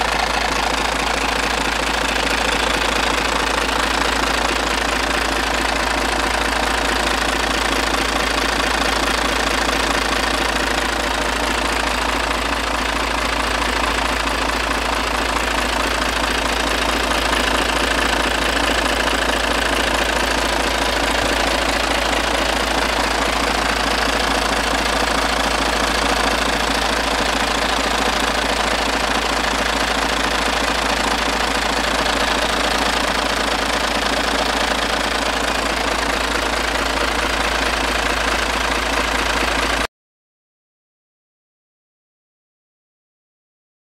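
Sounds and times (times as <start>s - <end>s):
diesel truck engine idling: 0.0s - 39.9s.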